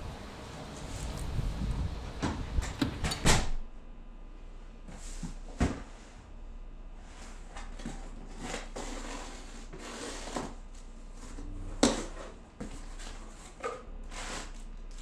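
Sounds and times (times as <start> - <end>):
cardboard scraping and rustling: 7.1 - 15.0.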